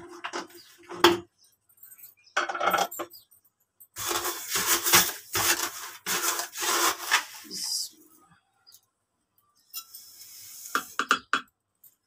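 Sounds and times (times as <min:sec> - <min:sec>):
sugar pouring into plastic jar: 0:04.0 - 0:07.9.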